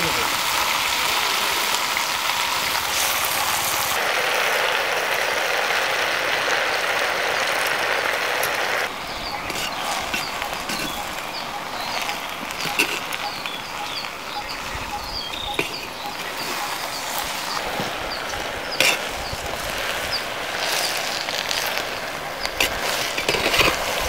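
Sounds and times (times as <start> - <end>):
leaves sizzling in a pot: 0.0 - 24.0
faint high chirps: 8.9 - 21.1.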